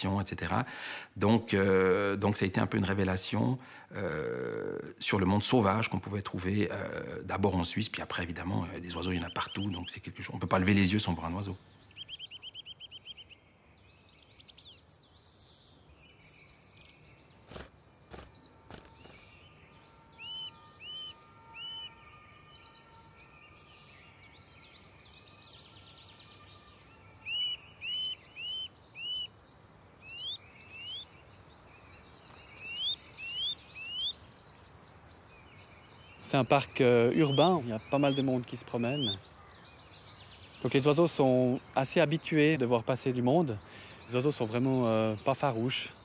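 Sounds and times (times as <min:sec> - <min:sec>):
small birds chirping: 0:00.0 - 0:46.0
bird whistling calls: 0:14.1 - 0:17.7, 0:27.2 - 0:29.3, 0:30.0 - 0:31.1, 0:32.3 - 0:34.2, 0:37.1 - 0:39.2.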